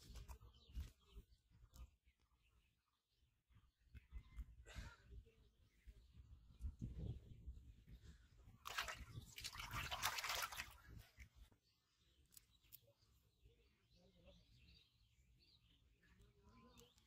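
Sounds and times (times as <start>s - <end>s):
fish splashing in water: 8.6s - 10.9s.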